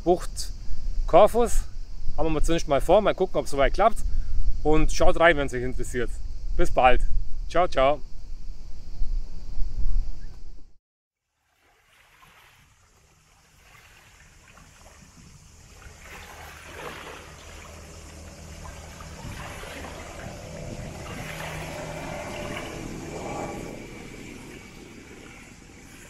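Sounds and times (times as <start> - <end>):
small waves lapping on sand: 11.2 - 26.0
low steady hum: 14.4 - 26.0.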